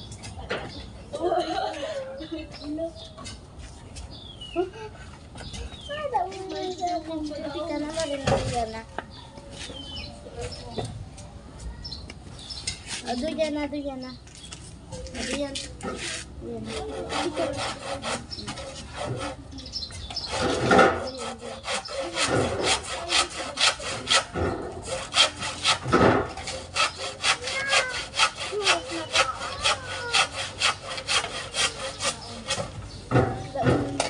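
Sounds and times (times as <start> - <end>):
handsaw cutting wood: 16.0 - 19.4, 20.1 - 32.8.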